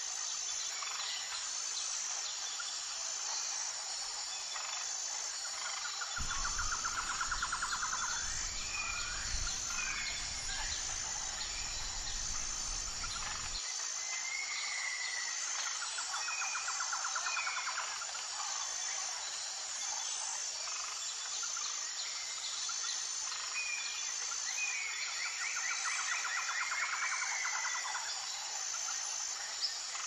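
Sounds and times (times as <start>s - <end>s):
pulsing insect drone: 0.1s - 13.9s
birds trilling and whistling: 6.2s - 13.6s.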